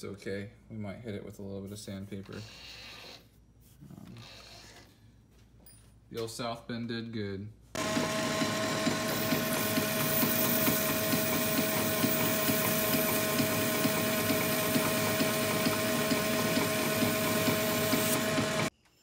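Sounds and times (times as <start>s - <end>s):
metal lathe humming and whining: 7.8s - 18.7s
sandpaper on spinning steel: 9.1s - 18.7s.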